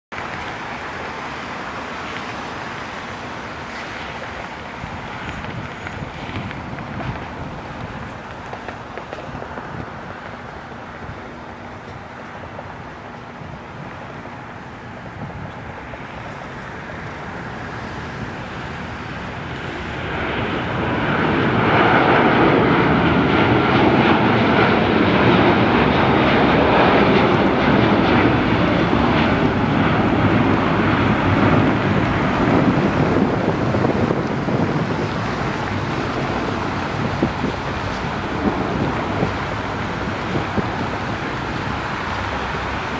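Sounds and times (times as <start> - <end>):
jet airliner taking off: 0.1 - 42.9.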